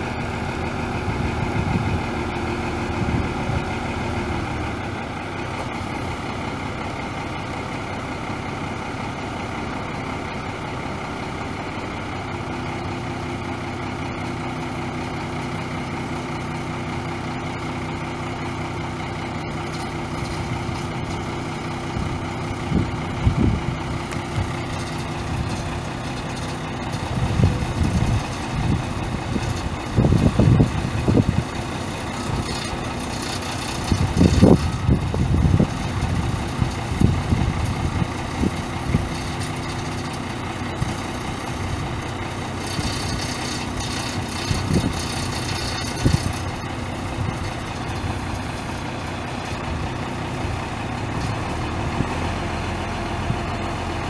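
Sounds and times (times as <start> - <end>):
low rumbles: 0.0 - 8.4, 19.4 - 52.2
diesel engine running: 0.0 - 54.0.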